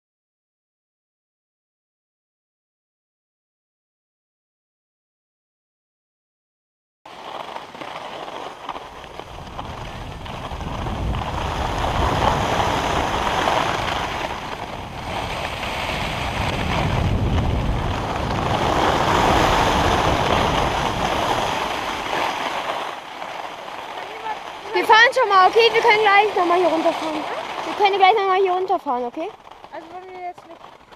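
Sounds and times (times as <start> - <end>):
skis hissing over snow: 7.1 - 30.9
wind rushing over microphone: 8.9 - 29.8.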